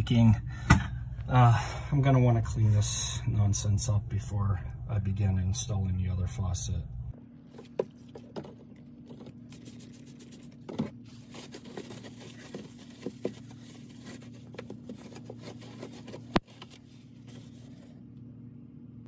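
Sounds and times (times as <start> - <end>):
low steady hum: 0.0 - 19.0
paper towel scrubbing a sink: 9.0 - 18.0.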